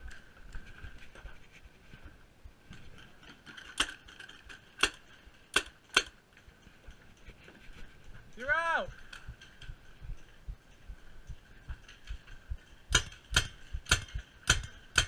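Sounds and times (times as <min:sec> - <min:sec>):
paintball gun cracks: 0:04.8 - 0:06.2.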